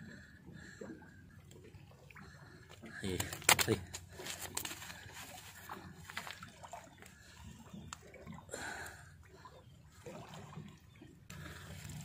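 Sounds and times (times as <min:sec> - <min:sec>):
light water sounds: 0:00.0 - 0:12.0
handling clicks and rustles: 0:03.2 - 0:06.4.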